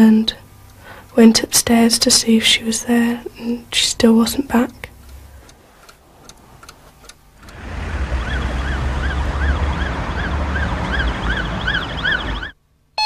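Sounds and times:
low engine rumble: 1.2s - 12.6s
faint ticks: 4.7s - 7.6s
emergency siren wailing: 7.5s - 12.6s.

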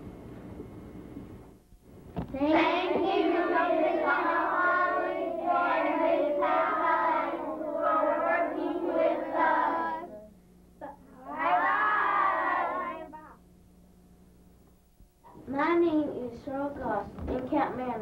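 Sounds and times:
children singing in unison: 2.4s - 10.1s, 11.2s - 13.1s.

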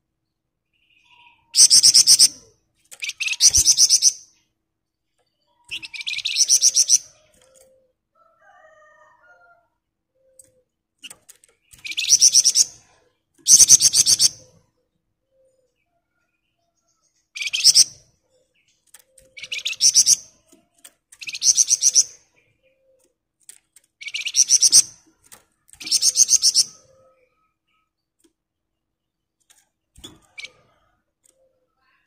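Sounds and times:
songbird trilling: 5.6s - 7.1s, 21.2s - 22.2s.

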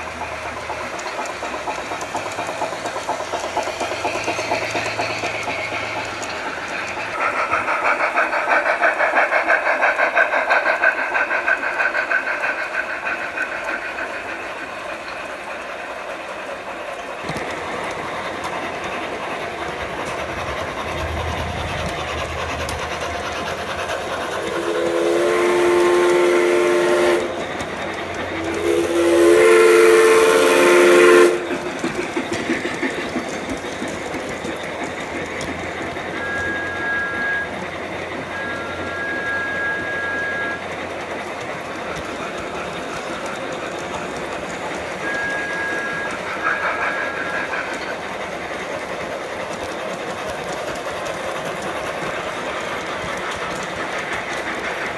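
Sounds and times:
model steam locomotive chuffing: 0.0s - 54.9s
model trains running on track: 0.0s - 54.9s
chime whistle blasts: 36.2s - 37.6s, 38.3s - 40.6s, 45.0s - 46.3s.

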